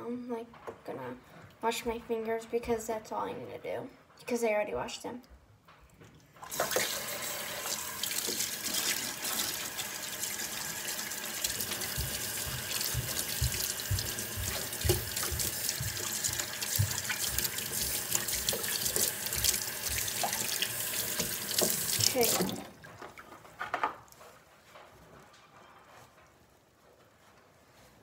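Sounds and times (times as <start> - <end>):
faucet running into sink: 6.4 - 22.8
soft low thumps: 11.9 - 17.5.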